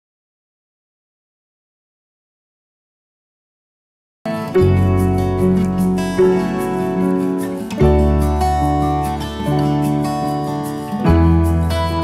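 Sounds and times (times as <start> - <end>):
strummed acoustic guitar: 4.3 - 12.0.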